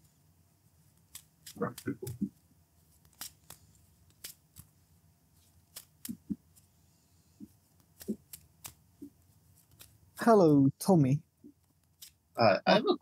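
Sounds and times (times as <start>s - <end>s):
cards being shuffled: 0.8s - 6.7s, 7.4s - 10.2s, 11.6s - 12.2s.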